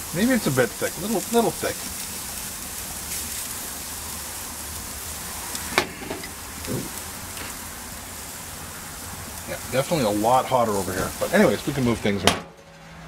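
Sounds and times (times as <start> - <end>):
bacon sizzling on a grill: 0.0 - 13.0.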